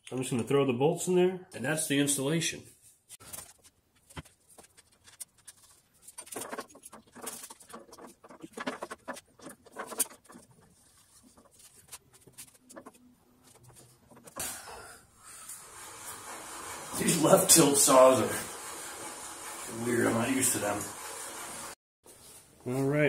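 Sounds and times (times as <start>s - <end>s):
rustling: 2.8s - 14.4s.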